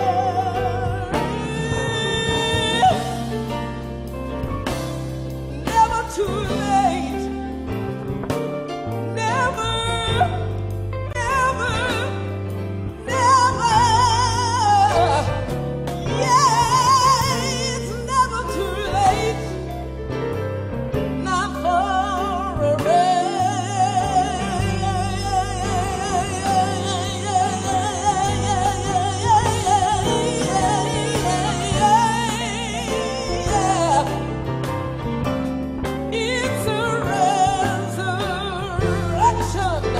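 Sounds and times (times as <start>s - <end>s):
person singing gospel: 0.0s - 3.6s, 21.3s - 34.5s
band with steady bass line: 0.0s - 39.9s.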